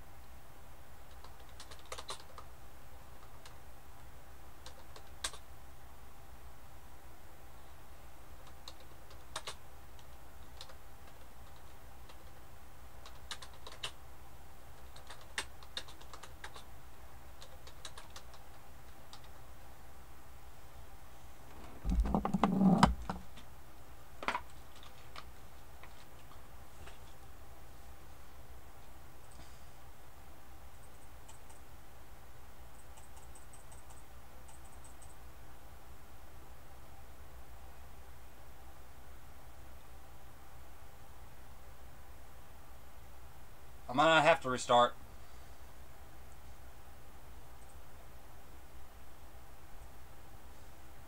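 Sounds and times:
keyboard typing: 1.1s - 2.5s, 4.6s - 5.4s, 8.4s - 12.4s, 13.0s - 14.0s, 14.7s - 16.7s, 17.4s - 19.5s, 30.8s - 31.6s, 32.8s - 35.2s.

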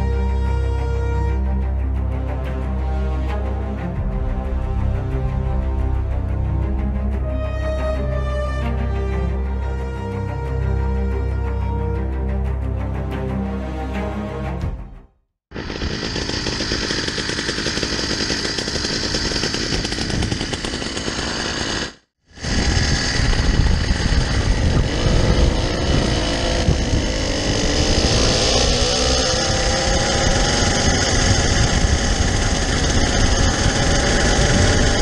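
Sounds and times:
motorized bicycle engines buzzing: 15.5s - 35.0s
wind rumble on microphone: 22.3s - 35.0s.

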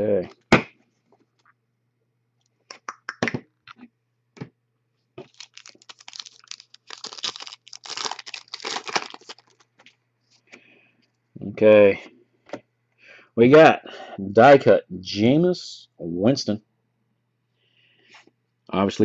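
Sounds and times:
foil wrapper tearing and crumpling: 5.2s - 9.7s.

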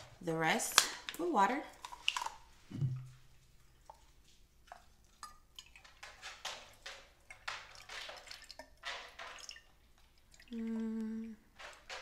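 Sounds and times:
water pouring and gurgling: 3.6s - 12.0s
woman humming: 10.5s - 11.4s.

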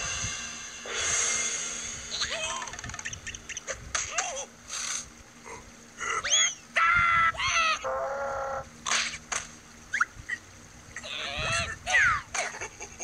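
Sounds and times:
cartoon character squeals: 2.1s - 3.0s, 6.2s - 8.7s, 11.0s - 12.4s.

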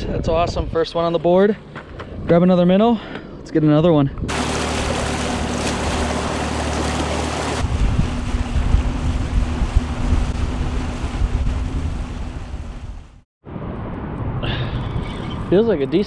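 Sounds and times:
wind buffeting microphone: 4.0s - 15.5s
outboard motor humming: 4.3s - 13.2s
water rushing: 4.3s - 13.2s.

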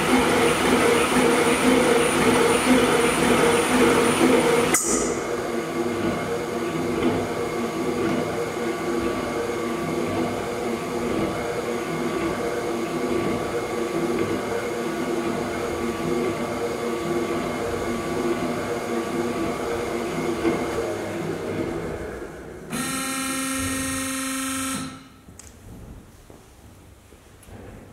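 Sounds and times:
power hacksaw running: 22.7s - 25.0s.

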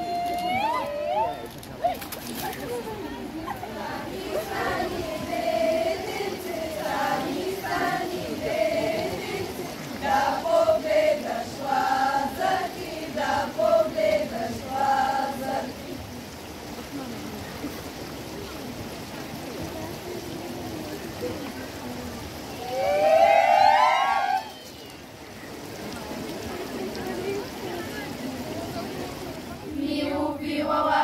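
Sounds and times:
shallow stream rushing: 0.0s - 31.0s
girls singing folk song: 3.6s - 15.9s, 29.6s - 31.0s.

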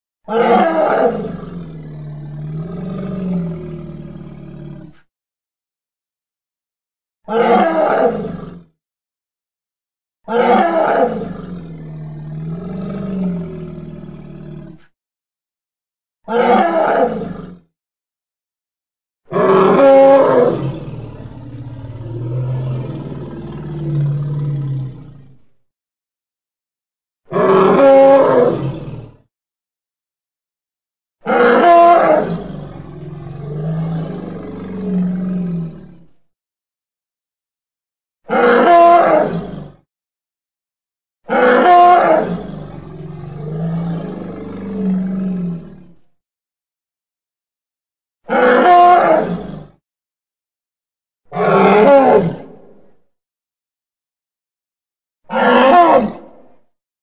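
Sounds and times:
elephant roar: 0.3s - 5.0s, 7.3s - 8.7s, 10.3s - 14.9s, 19.3s - 25.5s, 27.3s - 29.2s, 31.3s - 35.9s, 38.3s - 39.8s, 41.3s - 45.8s, 48.3s - 49.6s, 51.3s - 52.6s, 55.3s - 56.3s
elephant trumpeting: 51.3s - 52.2s, 55.3s - 56.2s.

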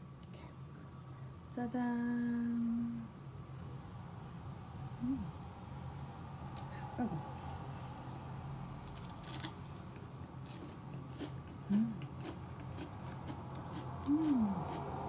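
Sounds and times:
person humming mmm: 5.0s - 5.4s, 11.6s - 12.3s, 14.0s - 15.0s
person chewing crunchy biscuit: 8.9s - 15.0s.

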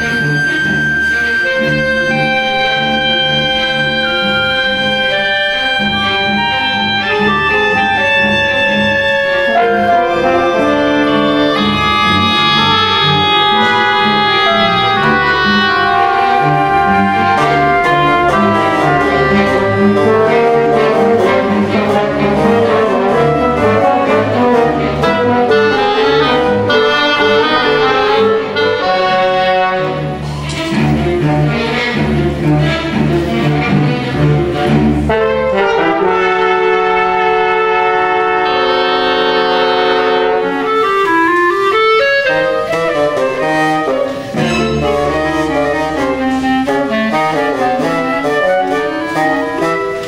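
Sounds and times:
brass section: 0.0s - 50.0s.

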